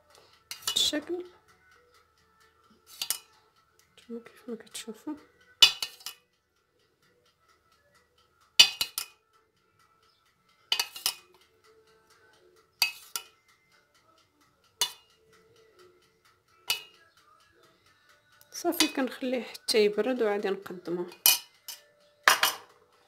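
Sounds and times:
metal spoon clinking against pot: 0:00.5 - 0:01.0, 0:02.9 - 0:03.4, 0:05.6 - 0:06.3, 0:08.6 - 0:09.2, 0:10.7 - 0:11.4, 0:12.8 - 0:13.4, 0:14.8 - 0:15.1, 0:16.7 - 0:17.1, 0:21.1 - 0:22.8.

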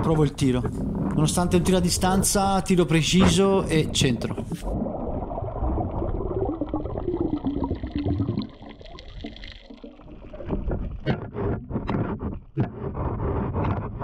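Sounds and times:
low underwater rumble: 0:00.0 - 0:13.9.

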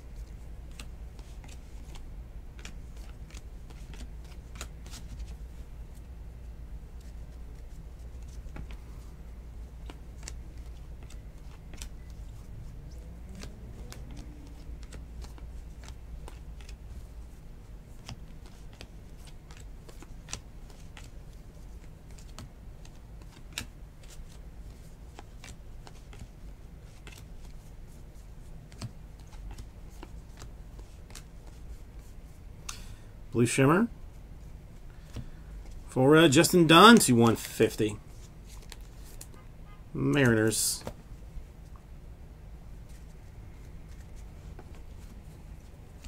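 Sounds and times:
low steady hum: 0:00.0 - 0:46.0
trading cards flipped by hand: 0:00.2 - 0:05.4, 0:07.0 - 0:09.0, 0:09.8 - 0:17.0, 0:17.9 - 0:27.7, 0:28.6 - 0:32.8, 0:38.1 - 0:39.4, 0:42.8 - 0:46.0.

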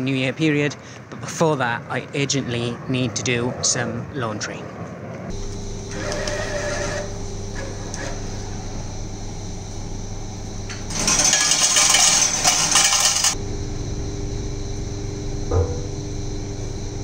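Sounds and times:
machine low hum: 0:05.3 - 0:17.0
coins clattering into metal tray: 0:10.9 - 0:13.4.

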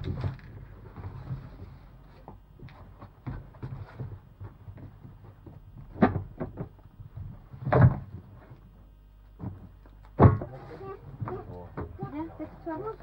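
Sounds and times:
books knocking and rustling: 0:00.0 - 0:08.6, 0:09.3 - 0:12.1
books thumping on a mat: 0:02.2 - 0:08.2, 0:09.4 - 0:10.6.

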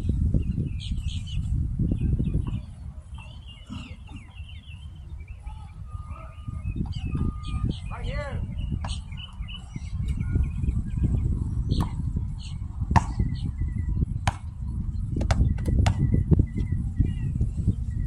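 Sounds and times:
wind buffeting microphone: 0:00.0 - 0:18.0
basketball bouncing on court: 0:12.9 - 0:13.4, 0:14.2 - 0:14.6.

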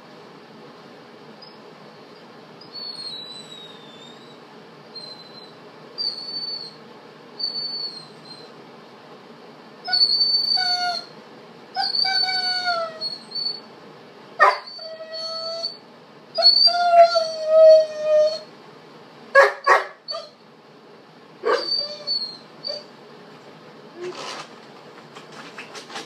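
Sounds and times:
dog whining: 0:02.2 - 0:06.8, 0:07.4 - 0:08.6, 0:09.8 - 0:13.7, 0:14.4 - 0:18.5, 0:19.4 - 0:20.4, 0:21.4 - 0:23.0, 0:23.9 - 0:24.5
dog howling: 0:11.8 - 0:13.6, 0:14.4 - 0:15.8, 0:16.4 - 0:18.5, 0:21.4 - 0:22.9.

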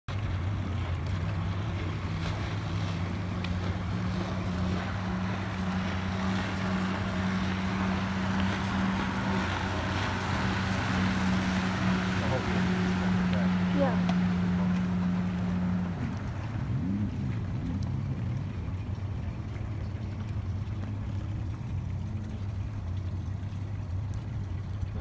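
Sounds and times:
motorboat engine droning: 0:00.1 - 0:25.0
water noise: 0:00.1 - 0:25.0
wind: 0:00.1 - 0:25.0.

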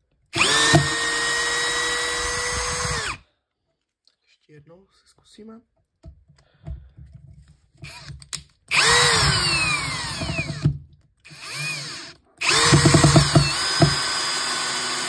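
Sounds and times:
cordless drill motor whine: 0:00.4 - 0:03.2, 0:07.8 - 0:08.1, 0:08.7 - 0:10.7, 0:11.3 - 0:15.0
rapid clicks of drill clutch: 0:11.3 - 0:15.0.

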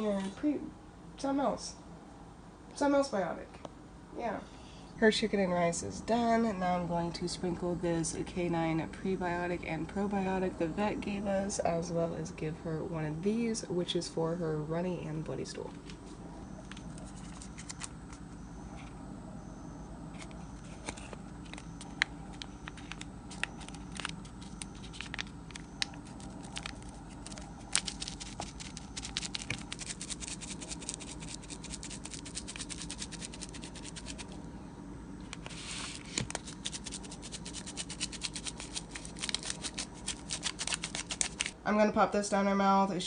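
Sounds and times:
foil sachet crinkling: 0:20.7 - 0:34.4, 0:35.4 - 0:41.6
sachet tapping and shaking: 0:21.5 - 0:34.3, 0:36.1 - 0:41.6.

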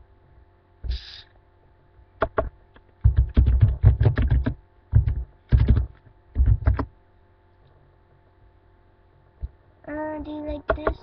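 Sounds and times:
typing on computer keyboard: 0:02.2 - 0:06.9.

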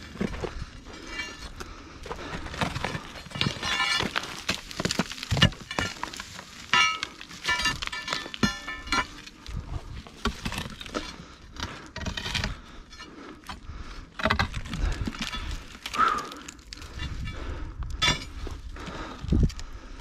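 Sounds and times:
pole knocking and scraping on rock: 0:00.0 - 0:09.3, 0:10.0 - 0:13.6, 0:14.2 - 0:15.6.

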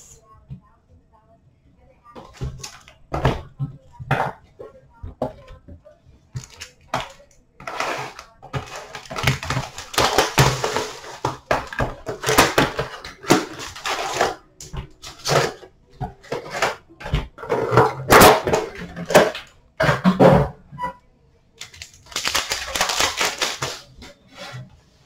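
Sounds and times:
packaging crinkling and tearing: 0:21.6 - 0:23.9.

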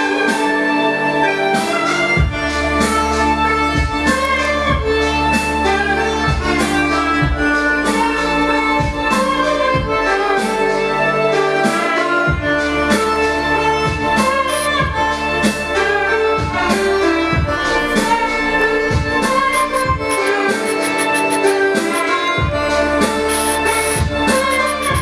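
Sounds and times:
music through speakers: 0:11.6 - 0:25.0
deep bass beat: 0:17.4 - 0:21.5, 0:23.2 - 0:25.0.

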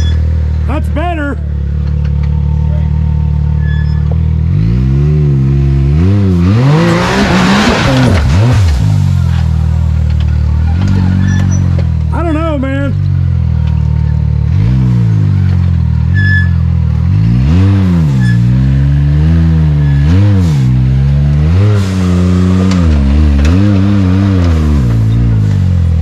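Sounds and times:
engine revving: 0:00.0 - 0:26.0.

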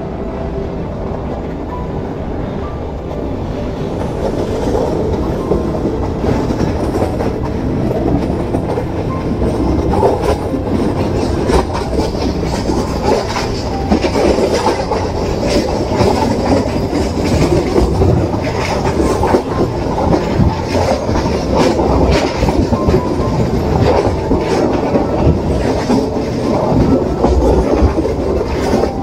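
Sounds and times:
train wheels rumbling on track: 0:00.0 - 0:29.0
wheels clacking at rail joints: 0:03.9 - 0:29.0.

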